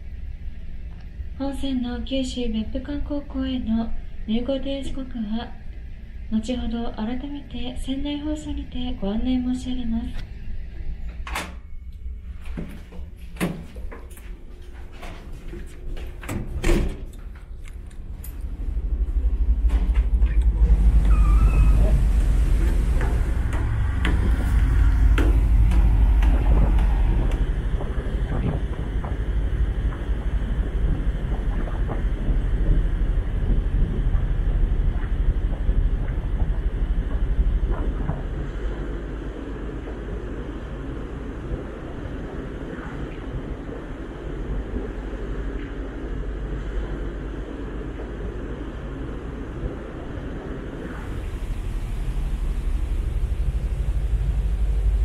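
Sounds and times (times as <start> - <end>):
ship engines rumbling: 12.1 - 55.0
wind on microphone: 18.4 - 55.0.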